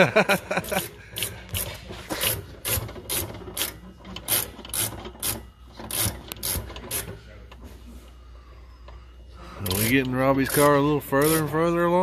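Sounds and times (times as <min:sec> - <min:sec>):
hand ratchet clicking: 0:00.6 - 0:07.1, 0:09.6 - 0:11.6.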